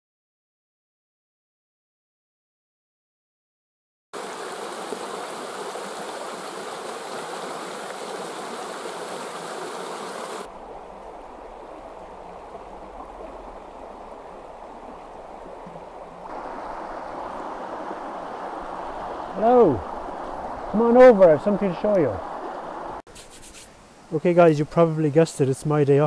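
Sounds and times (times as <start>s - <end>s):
stream rushing over stones: 4.2s - 23.0s.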